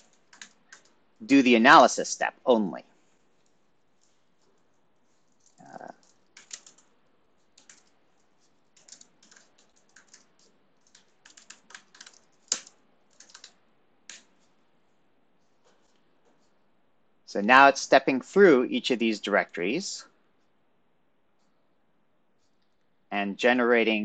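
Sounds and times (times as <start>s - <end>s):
typing on a keyboard: 0.0s - 1.0s, 4.0s - 14.5s.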